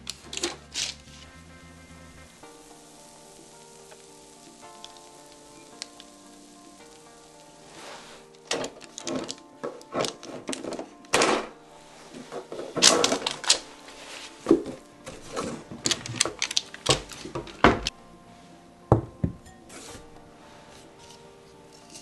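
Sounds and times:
parchment paper crinkling: 0.0 - 1.4, 2.3 - 17.9.

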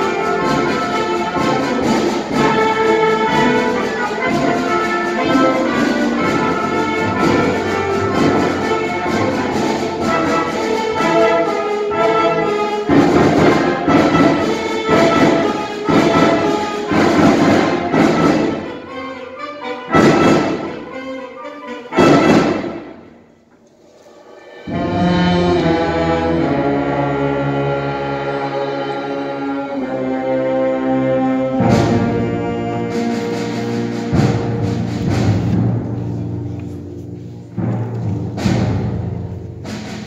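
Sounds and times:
concert band playing: 0.0 - 40.0.

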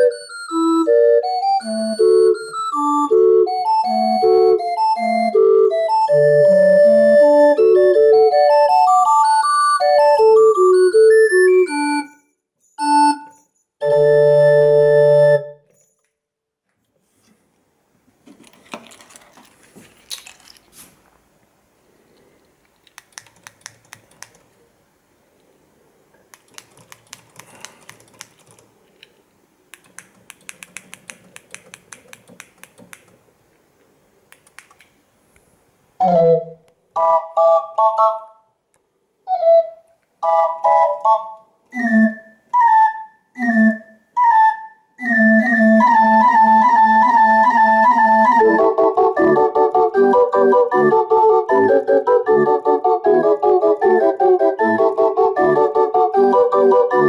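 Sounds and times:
barrel organ playing: 0.0 - 12.2, 12.8 - 15.6, 36.0 - 38.3, 39.3 - 57.0.

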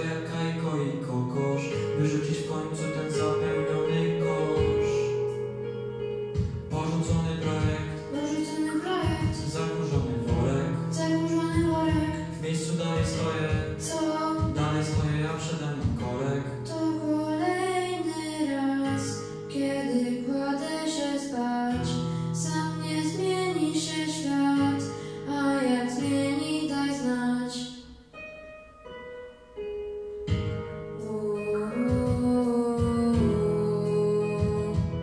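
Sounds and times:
backing track of steady chords: 0.0 - 35.0
boys singing a duet: 31.2 - 35.0.

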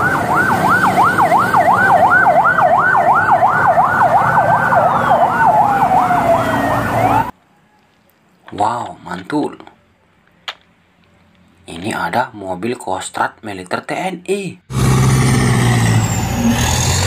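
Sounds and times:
ambulance siren yelping: 0.0 - 7.4
street traffic hum: 0.0 - 17.0.

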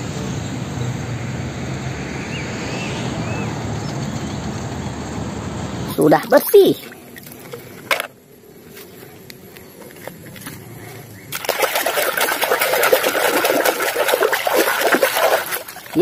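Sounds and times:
toy splashing in muddy water: 6.2 - 8.1, 11.3 - 16.0.

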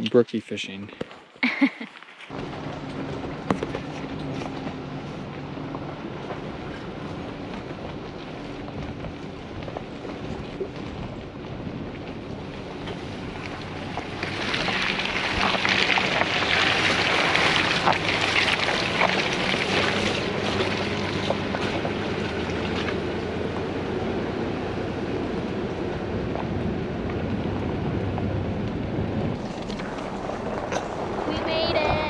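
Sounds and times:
truck engine hum: 1.2 - 32.0
tyres splattering through mud: 12.7 - 23.5.

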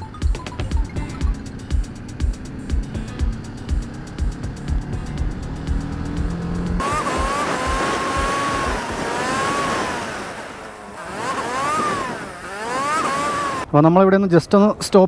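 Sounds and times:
background music with beat: 0.0 - 9.4
motorcycle engine running: 0.0 - 13.7.

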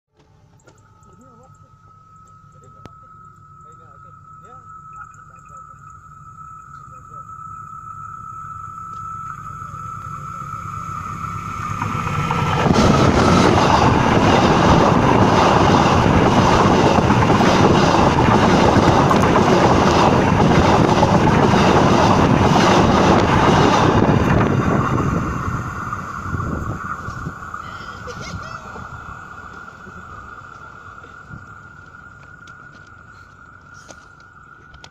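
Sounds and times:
train wheels clattering on rails: 11.6 - 28.6.

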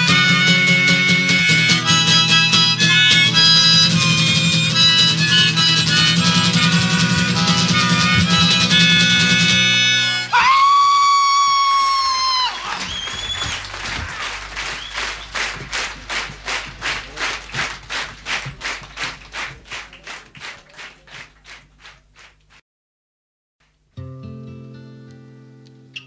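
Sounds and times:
audience clapping in unison: 10.6 - 22.6
short whistle: 12.3 - 13.6, 14.8 - 15.3.

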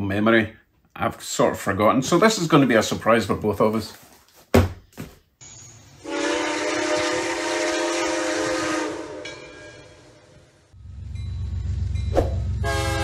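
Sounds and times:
train air horn blast: 6.0 - 9.4, 12.6 - 13.0.

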